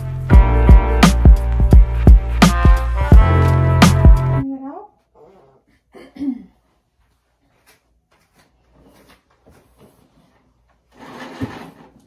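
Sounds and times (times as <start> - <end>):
person clearing throat: 5.7 - 6.6
curtain drawn open: 10.9 - 12.0.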